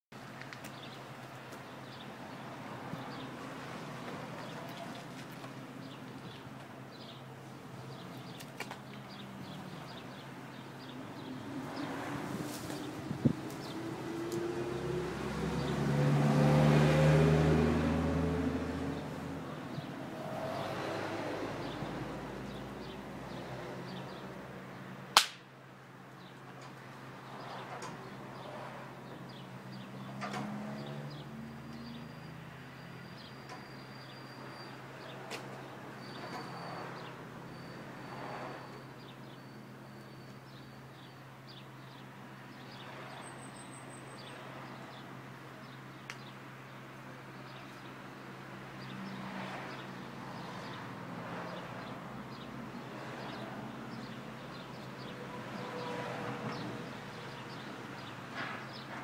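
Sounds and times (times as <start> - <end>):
sharp crack: 25.1 - 25.5.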